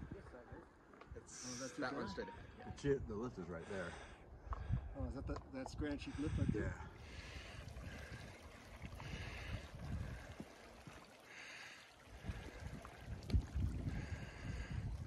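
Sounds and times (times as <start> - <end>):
wind buffeting microphone: 0.0 - 0.4, 4.3 - 11.2, 11.9 - 15.0.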